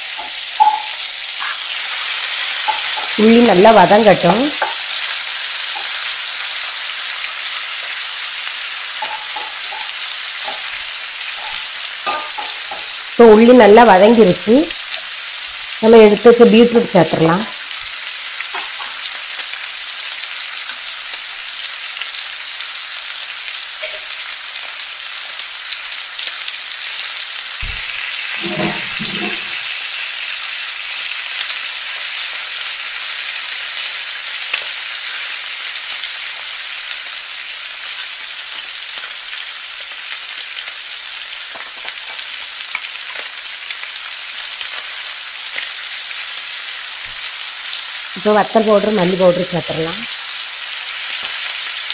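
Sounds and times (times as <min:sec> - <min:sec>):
vegetables sizzling in oil: 0:00.0 - 0:51.9.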